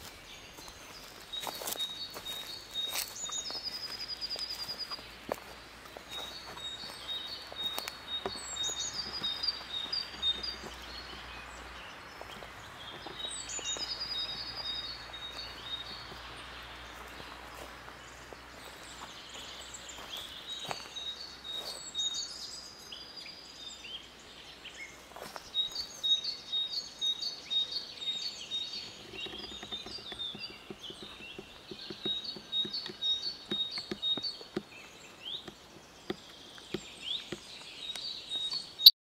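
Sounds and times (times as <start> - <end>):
songbirds chirping and trilling: 0.0 - 38.9.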